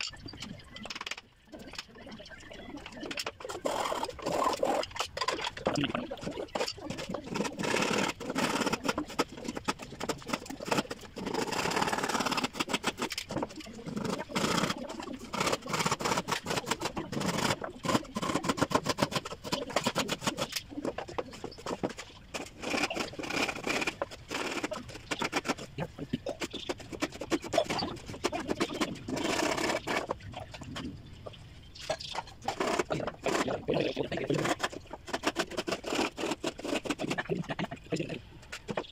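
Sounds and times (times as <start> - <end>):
wooden boards knocking and scraping: 3.1 - 30.8, 31.8 - 37.8.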